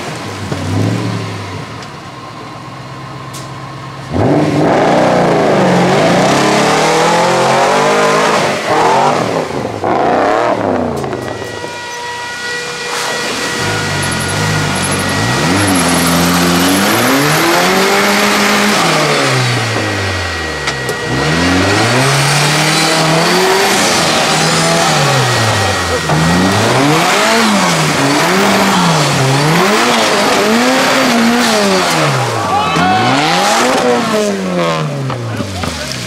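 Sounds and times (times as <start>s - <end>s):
off-road buggy engine revving: 0.0s - 36.0s
spinning tyres and splashing mud: 12.7s - 36.0s.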